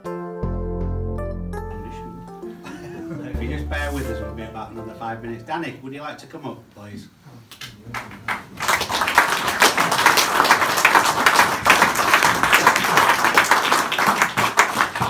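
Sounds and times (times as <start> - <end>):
audience applauding: 7.8 - 15.0.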